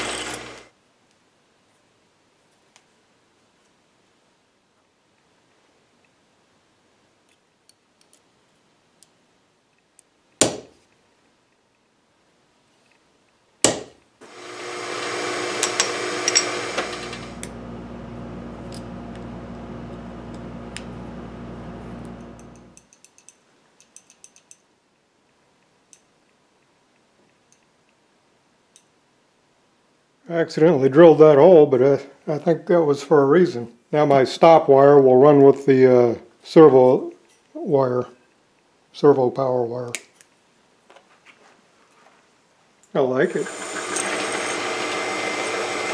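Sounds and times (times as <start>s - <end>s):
drill press drilling: 0.0s - 0.7s, 14.2s - 22.8s, 43.2s - 45.9s.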